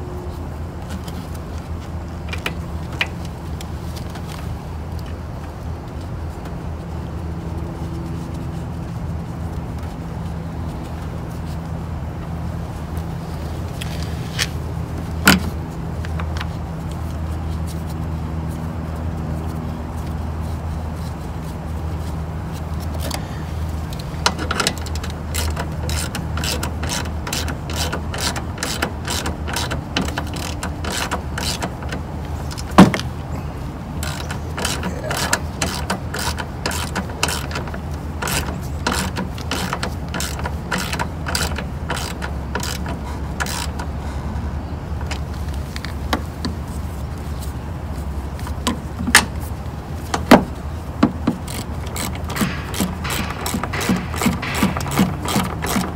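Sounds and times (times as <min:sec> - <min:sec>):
steady low hum: 0:00.0 - 0:55.9
hand ratchet clicking: 0:23.9 - 0:32.7, 0:34.0 - 0:43.9, 0:51.0 - 0:55.9
sharp knocks: 0:52.0 - 0:55.9.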